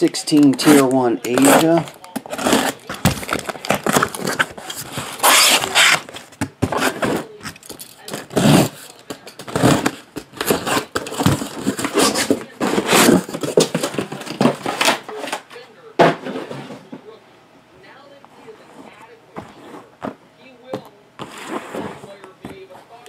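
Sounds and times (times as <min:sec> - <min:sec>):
cardboard scraping and tearing: 0:00.7 - 0:07.3, 0:08.2 - 0:08.8, 0:09.4 - 0:15.2, 0:18.4 - 0:20.2, 0:21.2 - 0:22.2.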